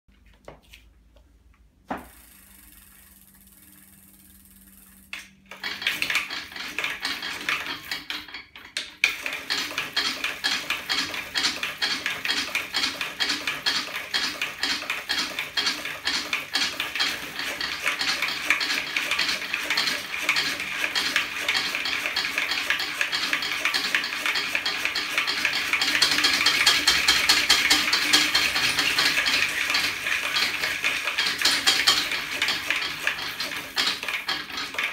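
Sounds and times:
rapid metallic clicking and clattering: 2.9 - 34.9.

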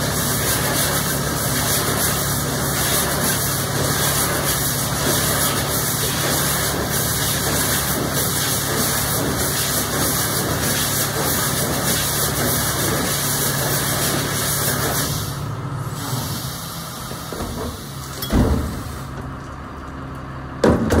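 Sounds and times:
hiss: 0.0 - 19.1
refuse truck running: 0.0 - 21.0
bin lifter clunk: 17.4 - 19.3.

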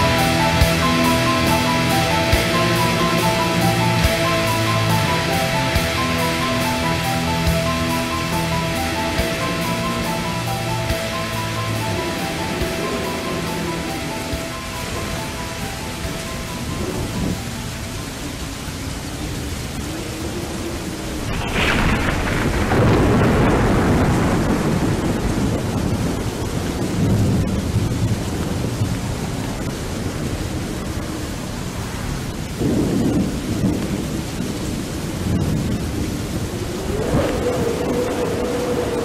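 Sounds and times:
faint drone tone: 0.0 - 18.4
steady rain: 0.0 - 39.0
thunder rumbling: 0.0 - 39.0.

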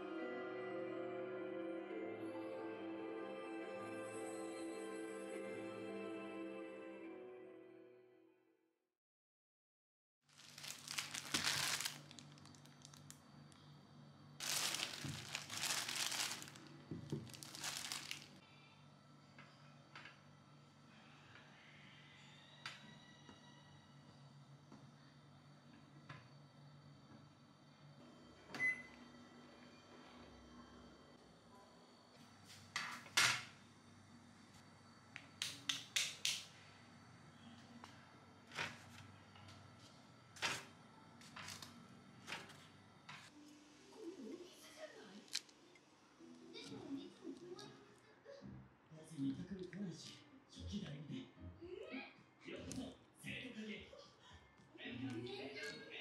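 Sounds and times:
plastic bag crinkling: 10.3 - 13.2, 14.4 - 18.4
crisp potato skins crackling: 10.4 - 13.2, 14.4 - 18.4.

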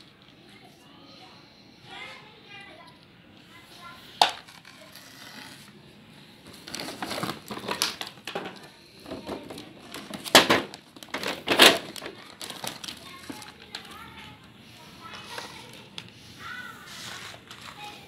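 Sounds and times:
plastic toys rustling: 3.7 - 5.8, 6.4 - 18.0.

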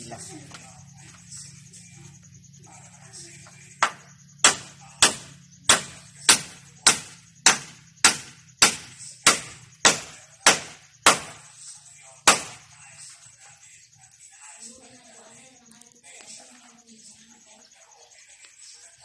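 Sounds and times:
hammer striking timber: 3.8 - 11.4, 12.2 - 12.6.

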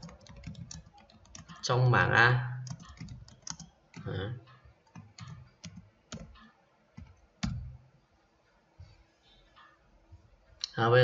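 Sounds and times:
keyboard key clicks: 2.7 - 4.1.

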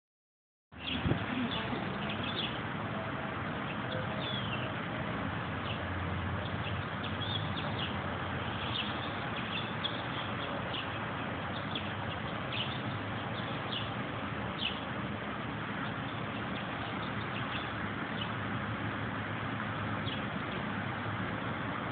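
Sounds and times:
small birds chirping: 0.7 - 2.7, 3.6 - 4.8, 5.5 - 18.6, 19.7 - 20.8
steady background noise: 0.7 - 21.9.

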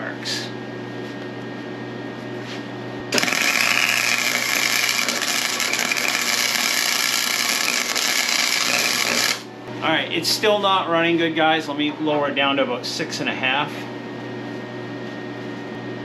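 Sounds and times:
welding arc crackling: 3.1 - 9.5.

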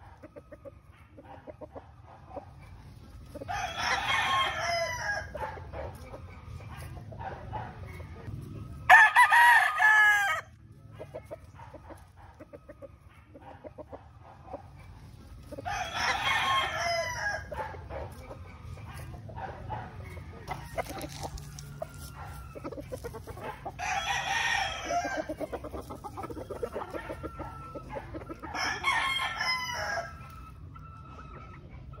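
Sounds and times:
roosters crowing: 0.0 - 32.0
soft clucking: 17.5 - 29.2.

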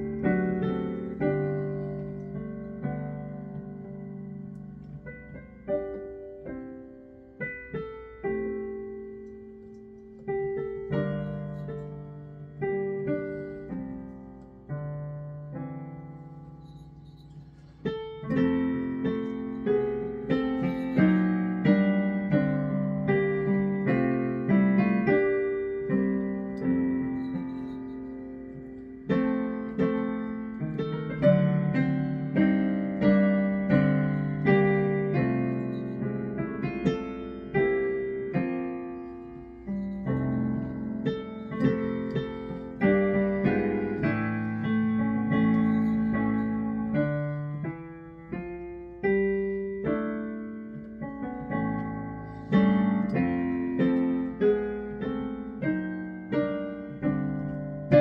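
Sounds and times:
digital piano playing: 0.0 - 58.0.

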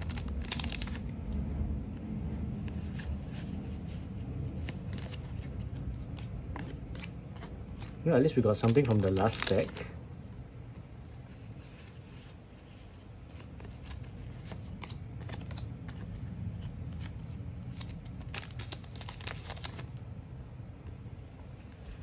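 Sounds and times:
low steady hum: 0.0 - 22.0
cards clicking and sliding: 4.6 - 9.8, 11.5 - 20.0.

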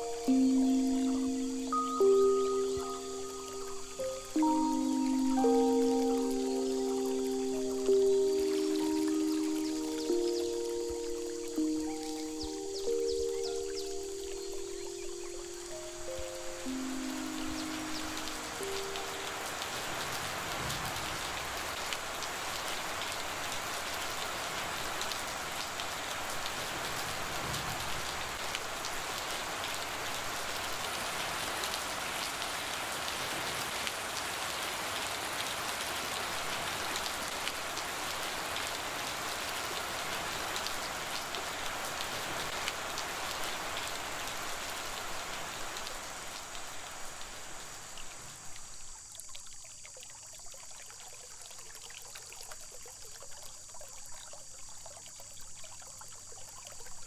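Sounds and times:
rain pattering on hard surfaces: 3.6 - 14.7, 15.3 - 49.3.

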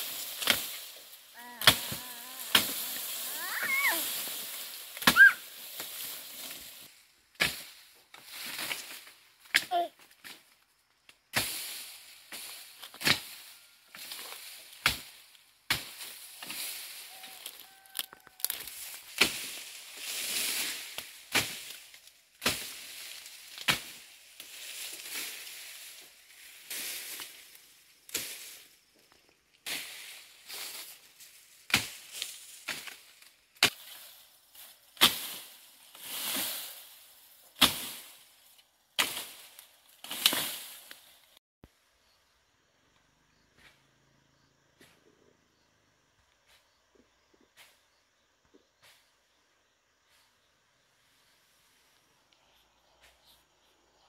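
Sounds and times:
blade slashing through grass: 0.0 - 6.8, 11.4 - 17.6, 18.4 - 27.5, 29.7 - 38.3, 39.0 - 41.1.

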